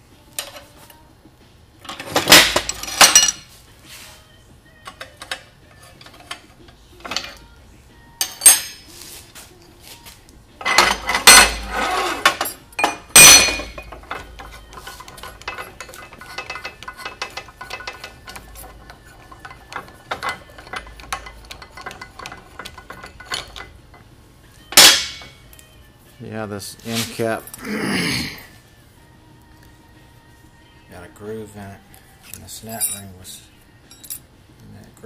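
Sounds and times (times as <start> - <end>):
steel clanking and scraping: 10.6 - 24.0, 24.7 - 25.4.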